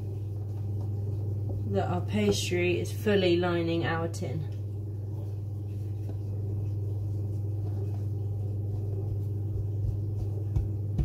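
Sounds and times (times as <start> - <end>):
steady low hum: 0.0 - 11.0
soft taps pressing pastry: 8.8 - 11.0.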